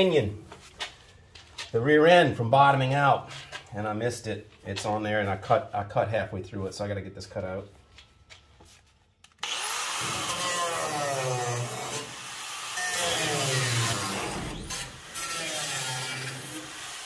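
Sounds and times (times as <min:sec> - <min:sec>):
angle grinder cutting steel: 0:09.4 - 0:17.0.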